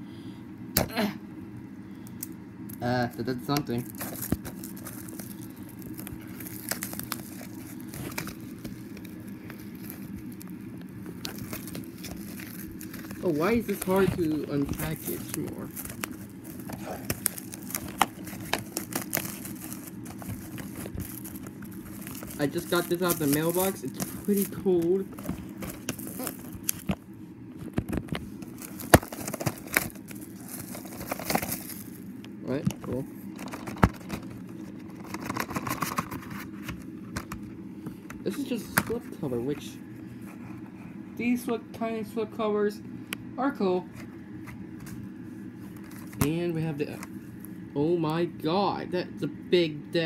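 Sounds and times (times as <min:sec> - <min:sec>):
packaging crackling and rustling: 0:03.0 - 0:37.6, 0:45.7 - 0:47.6.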